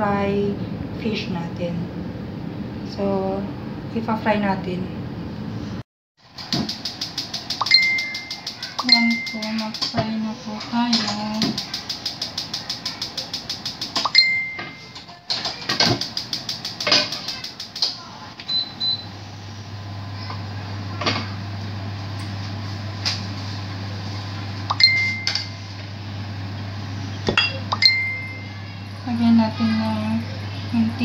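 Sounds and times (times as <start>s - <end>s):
short electronic beeps: 7.6s - 9.7s
gas stove igniter clicking: 15.9s - 18.0s
steady low hum: 16.0s - 31.0s.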